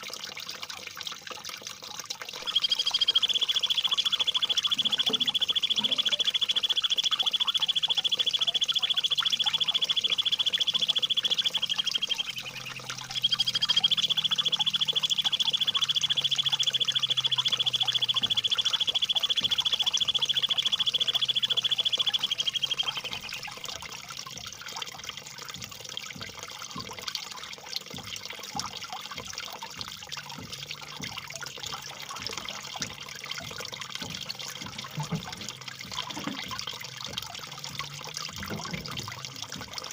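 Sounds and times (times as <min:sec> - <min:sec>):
trickling water: 0:00.0 - 0:39.9
bird trilling: 0:02.4 - 0:23.8.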